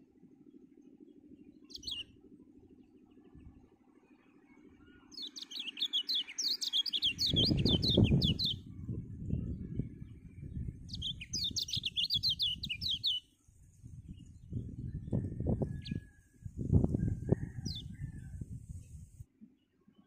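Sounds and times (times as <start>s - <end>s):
bird chirping song: 0.2s - 20.0s.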